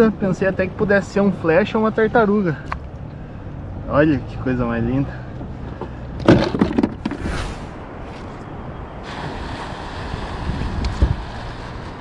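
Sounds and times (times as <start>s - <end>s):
wind buffeting microphone: 7.0s - 12.0s.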